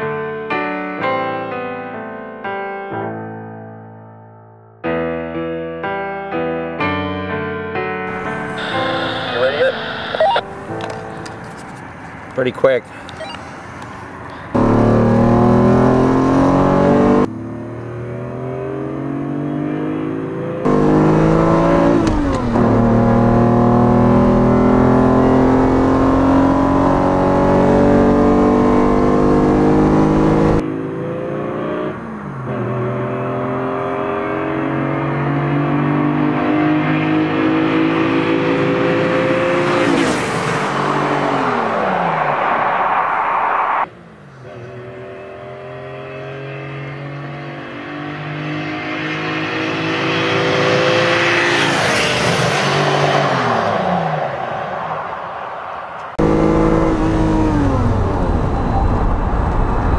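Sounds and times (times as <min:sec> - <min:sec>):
sports car engine accelerating hard: 0:08.1 - 0:11.6, 0:14.3 - 0:55.3, 0:56.0 - 0:59.9
car passing by: 0:37.0 - 0:45.0, 0:45.9 - 0:56.2.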